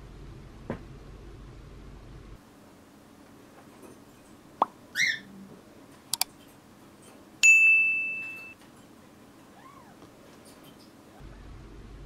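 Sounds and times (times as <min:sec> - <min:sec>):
click: 0:06.1 - 0:06.3.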